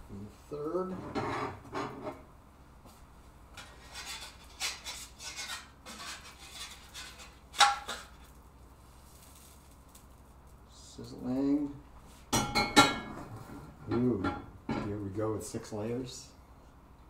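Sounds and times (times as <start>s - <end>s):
spatula scraping in frying pan: 1.0s - 2.2s, 3.6s - 8.2s.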